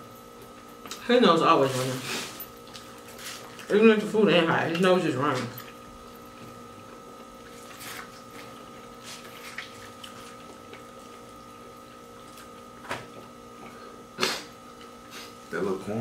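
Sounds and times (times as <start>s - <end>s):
steady hum: 0.0s - 16.0s
seafood being peeled and chewed: 1.9s - 3.8s, 4.6s - 15.5s.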